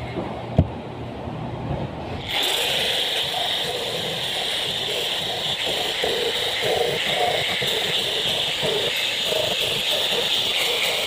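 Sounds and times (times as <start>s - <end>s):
angle grinder cutting wood: 2.2s - 11.0s.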